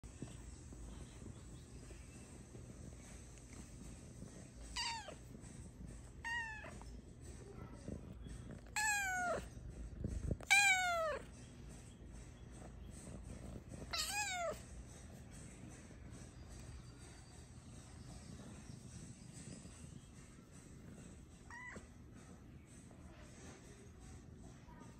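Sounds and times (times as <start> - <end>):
cat meowing: 4.7 - 5.2, 6.2 - 6.8, 8.6 - 9.5, 10.4 - 11.3, 13.9 - 14.6, 21.4 - 21.9.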